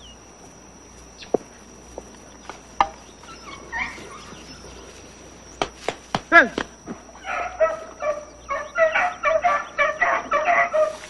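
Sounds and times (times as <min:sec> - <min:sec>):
steady high drone: 0:00.0 - 0:11.0
dogs yelping: 0:02.9 - 0:05.8, 0:06.9 - 0:11.0.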